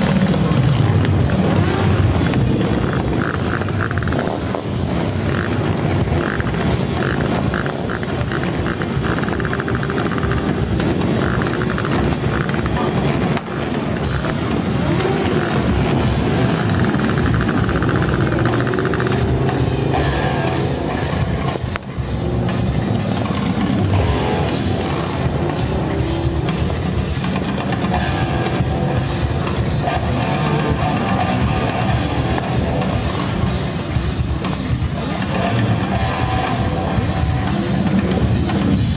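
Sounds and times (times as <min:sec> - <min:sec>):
drum kit beat: 0:00.0 - 0:38.9
electric guitar: 0:00.0 - 0:38.9.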